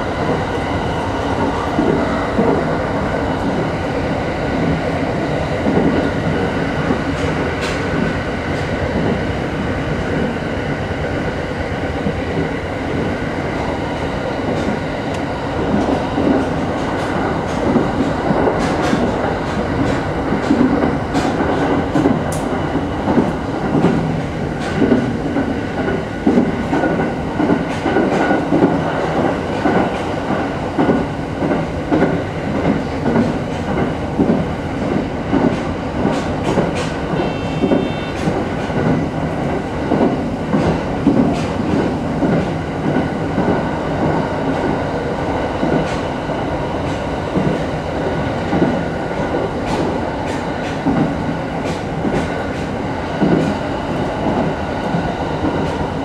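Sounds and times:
train running rumble: 0:00.0 - 0:56.0
train wheels clicking over rail joints: 0:05.6 - 0:09.3, 0:14.4 - 0:56.0
brief high tone: 0:37.2 - 0:38.2.

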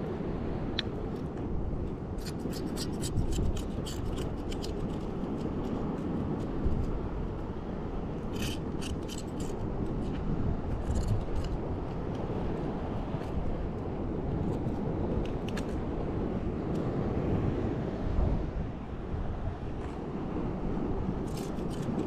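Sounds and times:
wind and surf rushing: 0:00.0 - 0:22.0
knife scraping and clicking on shell: 0:02.2 - 0:06.5, 0:08.3 - 0:09.7, 0:21.2 - 0:22.0.

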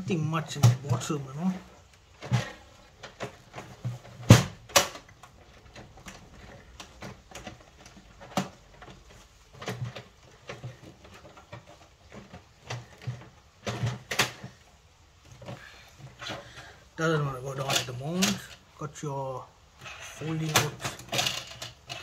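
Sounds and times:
loud plastic clacks: 0:01.7 - 0:16.7, 0:19.8 - 0:22.0
plastic clicks and knocks of printer: 0:01.8 - 0:16.4.

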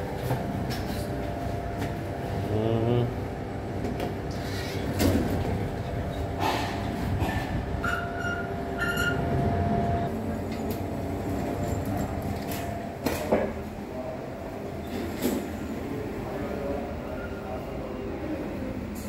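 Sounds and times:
elevator running rumble and hum: 0:00.0 - 0:19.0
short high beeps: 0:07.8 - 0:09.3.

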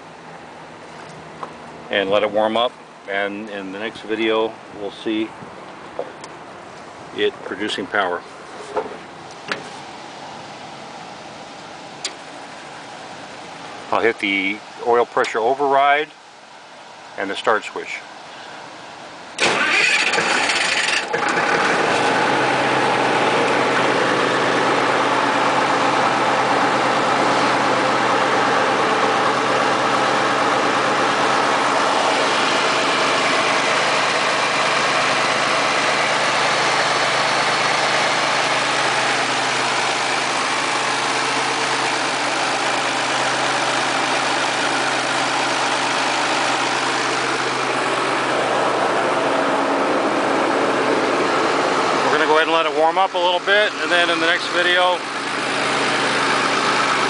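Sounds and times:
diesel engine idling: 0:00.0 - 0:57.0
starter motor cranking: 0:19.4 - 0:22.2.

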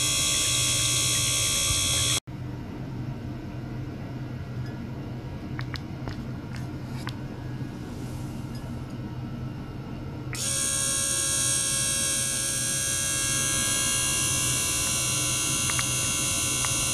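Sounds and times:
high-pitched electric buzz: 0:00.0 - 0:02.2, 0:10.4 - 0:16.9.

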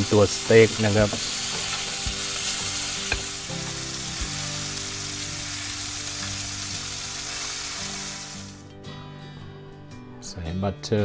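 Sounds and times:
steak sizzling in a pan: 0:00.0 - 0:08.6.

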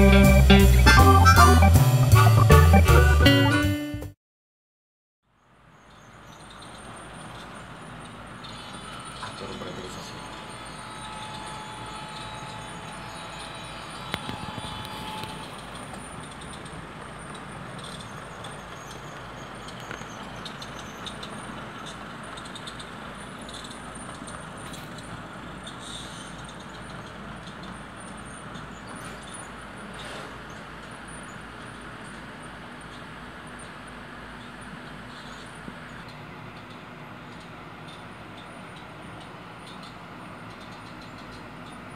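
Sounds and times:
motor hum: 0:08.9 - 0:17.3.

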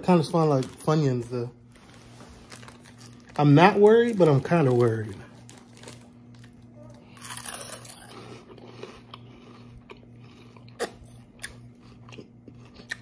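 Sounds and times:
steady low hum: 0:00.0 - 0:13.0
crunchy snack chewing: 0:04.1 - 0:13.0.

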